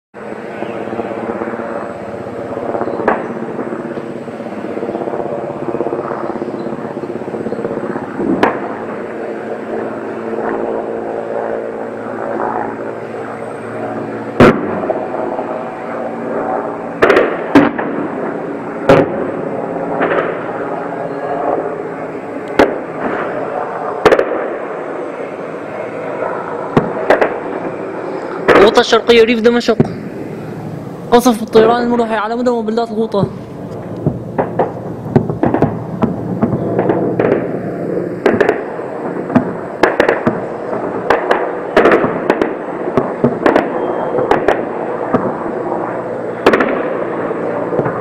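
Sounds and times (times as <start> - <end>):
helicopter flying overhead: 0.2 - 48.0
single gunshots: 14.4 - 15.0, 17.0 - 18.0, 18.9 - 19.3, 22.6 - 23.3, 24.0 - 24.6, 26.8 - 27.4, 34.0 - 37.6, 38.2 - 45.4, 46.4 - 47.0.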